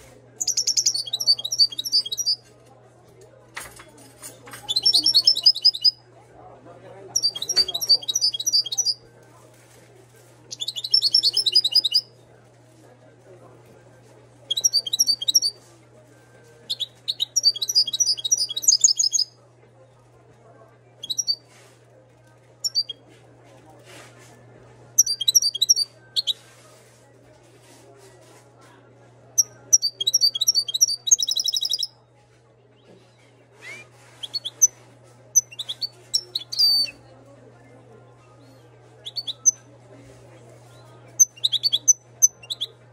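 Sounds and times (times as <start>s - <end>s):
bird twittering: 0.4s - 2.4s, 4.7s - 5.9s, 7.2s - 9.0s, 10.5s - 12.1s, 14.5s - 15.6s, 16.7s - 19.3s, 21.0s - 21.4s, 22.6s - 23.0s, 25.0s - 26.4s, 29.4s - 31.9s, 35.4s - 37.0s, 39.0s - 39.6s
finch singing: 0.4s - 2.4s, 4.7s - 5.9s, 7.2s - 9.0s, 10.5s - 12.1s, 14.5s - 15.6s, 16.7s - 19.3s, 21.0s - 21.4s, 25.0s - 26.4s, 29.7s - 31.9s.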